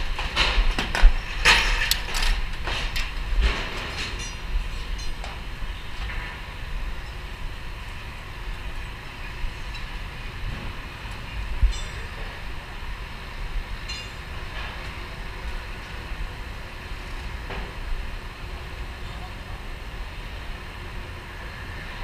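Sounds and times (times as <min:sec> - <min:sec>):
wind buffeting microphone: 0:00.0 - 0:22.0
faint high metal clinks: 0:11.7 - 0:12.2.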